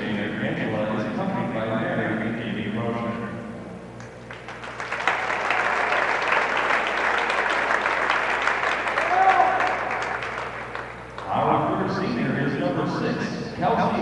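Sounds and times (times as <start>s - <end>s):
audience applauding: 4.3s - 11.3s
short cry: 9.0s - 9.8s.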